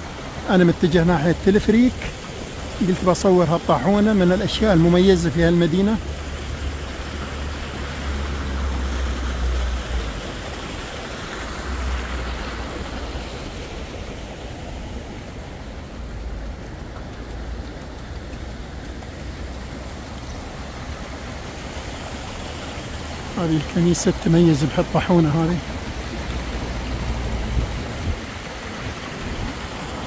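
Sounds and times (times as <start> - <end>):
running water from a stream: 0.0 - 30.0.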